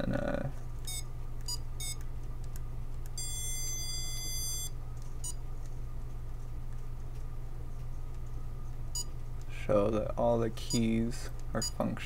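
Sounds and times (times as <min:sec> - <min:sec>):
steady low hum: 0:00.0 - 0:12.0
calculator beeps: 0:00.9 - 0:02.0, 0:03.2 - 0:05.4.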